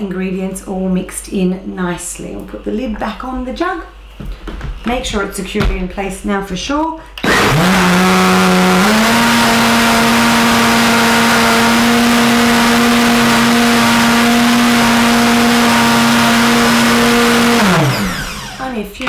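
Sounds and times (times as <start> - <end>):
blender motor whine: 7.2 - 18.7.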